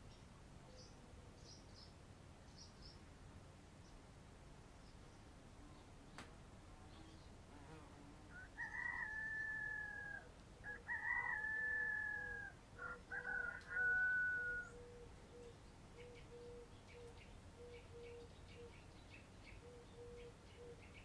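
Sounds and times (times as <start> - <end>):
rooster crowing: 8.3 - 15.0.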